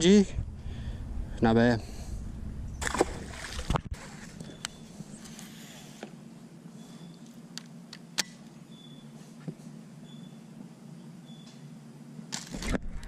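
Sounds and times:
low steady hum: 0.0s - 13.0s
water splash and knock: 2.8s - 4.0s.

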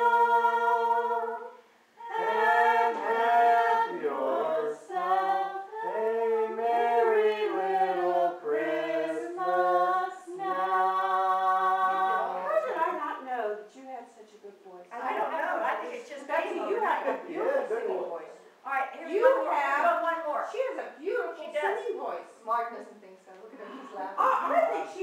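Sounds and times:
group singing a carol unaccompanied: 0.0s - 12.9s.

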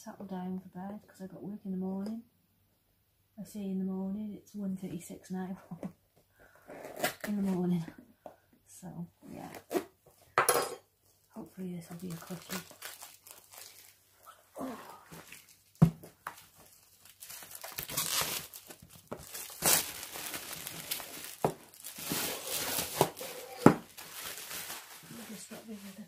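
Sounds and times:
packaging crinkling and tearing: 11.9s - 14.1s, 15.1s - 26.0s.

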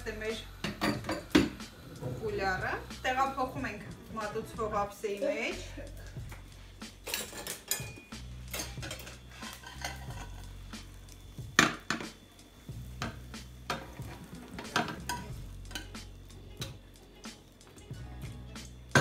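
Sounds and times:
utensils scraping on pan and plate: 6.9s - 11.0s, 13.0s - 16.8s.

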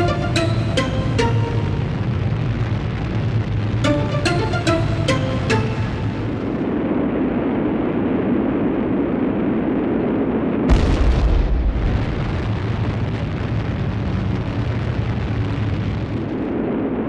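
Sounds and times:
deep volcanic rumble: 1.5s - 3.8s, 6.3s - 17.0s
loud volcanic blast: 6.3s - 17.0s.

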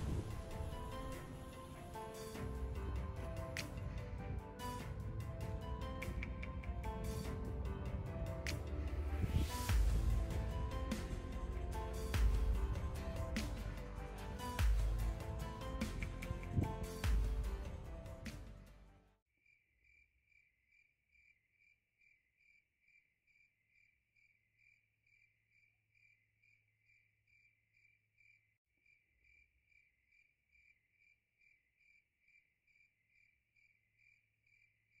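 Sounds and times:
music: 0.0s - 19.2s
faint insect chirping: 19.4s - 35.0s.

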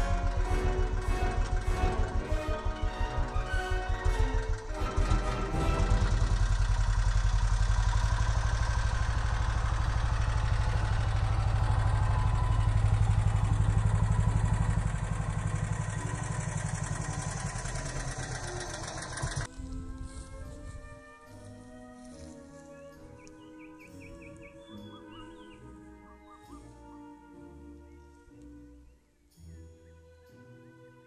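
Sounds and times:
quad bike engine running: 0.0s - 20.3s.

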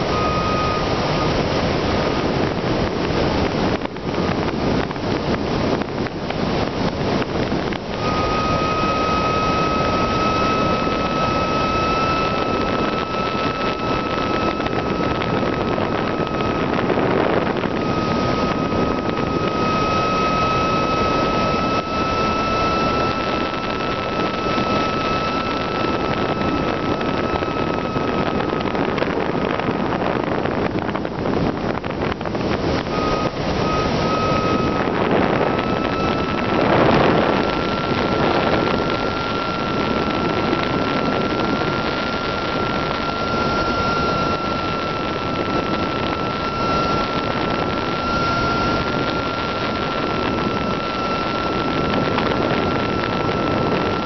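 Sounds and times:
airflow rushing over camera: 0.0s - 54.0s
thin high whine: 0.0s - 54.0s.

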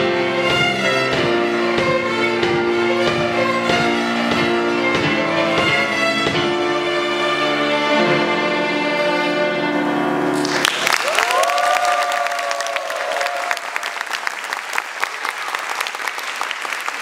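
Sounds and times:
violin ensemble chord: 0.0s - 10.7s
audience applause: 10.4s - 17.0s
people cheering: 10.4s - 17.0s.

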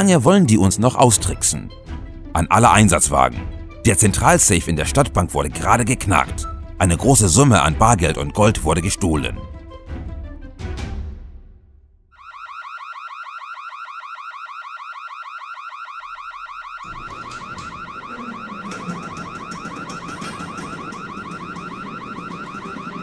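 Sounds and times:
alarm bell ringing: 12.2s - 23.0s.

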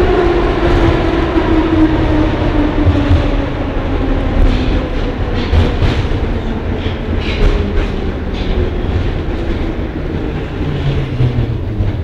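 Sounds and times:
metro train rumbling in tunnel: 0.0s - 12.0s
wheels clattering on track: 4.0s - 12.0s.

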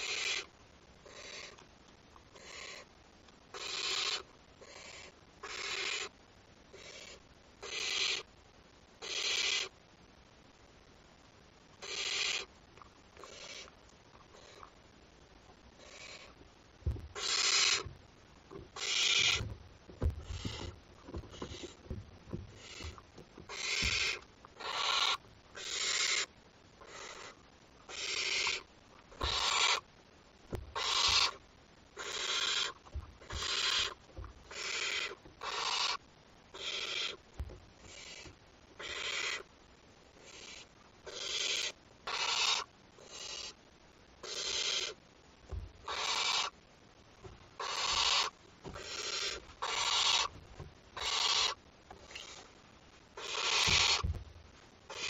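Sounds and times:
owlets rasping hissing calls: 0.0s - 0.5s, 1.1s - 1.6s, 2.4s - 2.9s, 3.5s - 6.2s, 6.8s - 8.3s, 9.0s - 9.8s, 11.8s - 12.5s, 13.2s - 13.7s, 17.1s - 17.9s, 18.6s - 29.9s, 30.6s - 31.4s, 32.0s - 36.0s, 36.6s - 37.2s, 37.8s - 39.5s, 40.2s - 43.6s, 44.2s - 45.0s, 45.8s - 46.6s, 47.6s - 50.4s, 51.0s - 52.5s, 53.2s - 54.2s
soft thumps on wood floor: 16.8s - 17.2s, 19.3s - 24.0s, 45.5s - 45.8s, 53.7s - 54.4s.

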